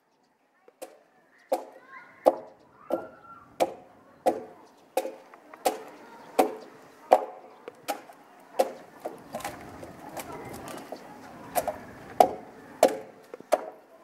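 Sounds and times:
axe chopping into timber: 0:00.8 - 0:09.6, 0:11.5 - 0:13.8.

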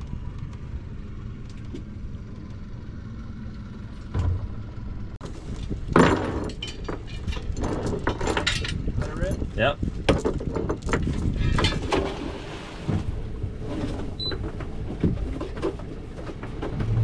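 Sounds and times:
outboard motor rumbling: 0:00.0 - 0:17.0
anchor chain rattling: 0:05.6 - 0:11.8.

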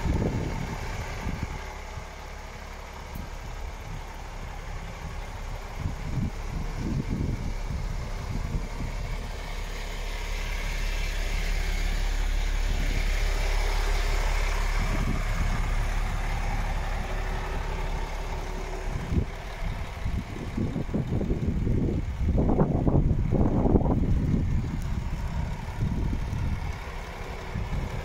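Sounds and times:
truck diesel engine idling: 0:00.0 - 0:28.0.

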